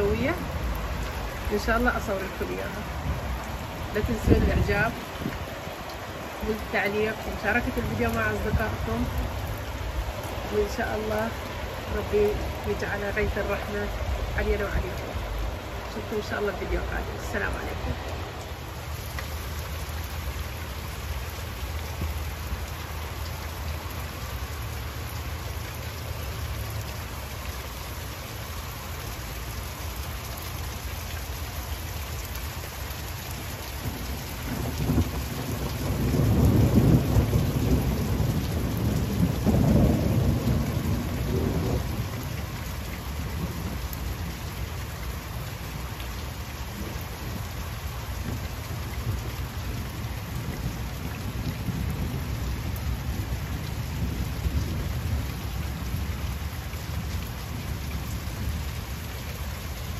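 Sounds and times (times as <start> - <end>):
steady rain: 0.0 - 59.9
thunder rumbling: 33.8 - 44.1, 49.0 - 56.3.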